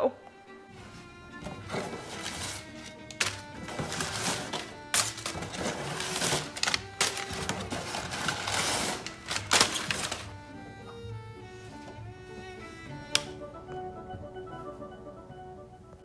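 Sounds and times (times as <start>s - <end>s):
background music: 0.0s - 16.0s
paper crackling and rustling: 1.6s - 10.4s.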